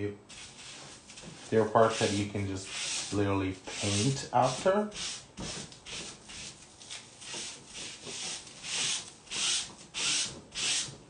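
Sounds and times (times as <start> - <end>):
hand rubbing tissue paper: 0.3 - 9.1.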